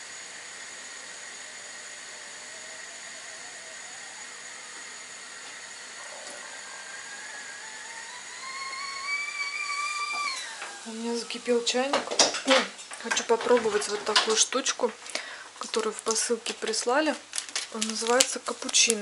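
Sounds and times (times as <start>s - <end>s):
kettle whistle rising in pitch: 0.3s - 11.4s.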